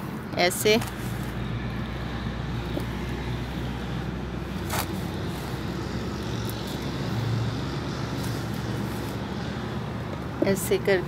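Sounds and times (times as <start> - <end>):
hand scraping soil: 0.0 - 2.0, 4.4 - 7.2, 7.9 - 9.7.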